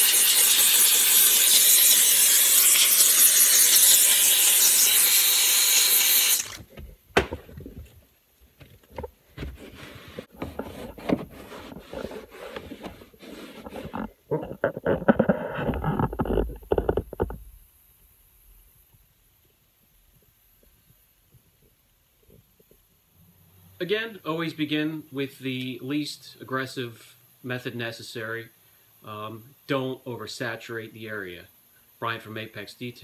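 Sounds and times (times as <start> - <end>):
steam jet hissing: 0.0 - 6.6
scuffs and knocks: 6.6 - 14.9.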